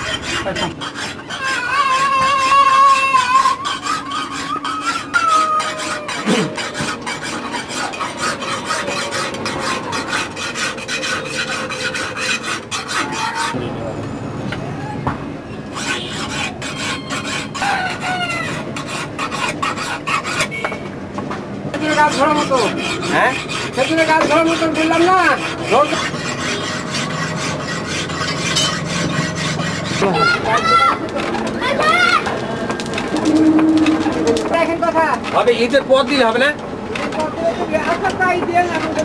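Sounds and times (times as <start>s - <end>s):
file rasping against metal: 0.0s - 13.7s, 15.7s - 20.7s, 21.7s - 32.2s, 33.2s - 39.0s.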